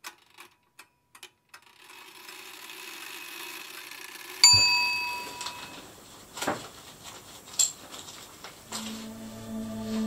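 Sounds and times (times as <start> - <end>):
sharp metallic ding: 4.4 - 5.8.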